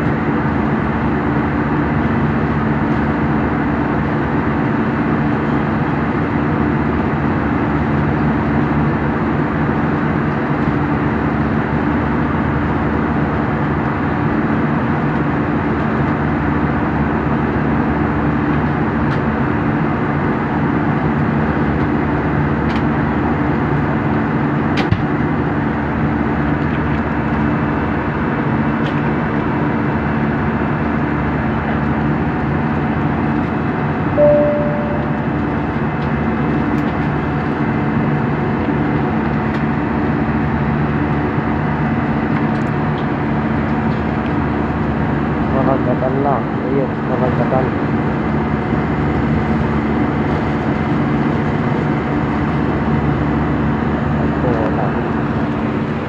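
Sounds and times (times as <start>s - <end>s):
low engine hum: 0.0s - 56.0s
short single tone: 34.2s - 35.6s.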